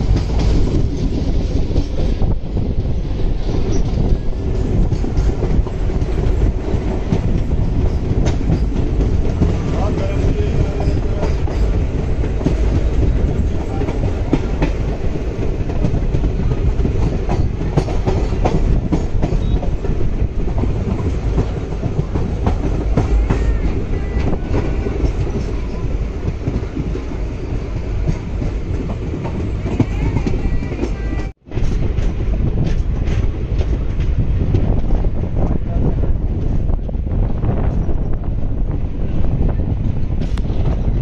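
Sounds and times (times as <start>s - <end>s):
train coaches rumbling: 0.0s - 41.0s.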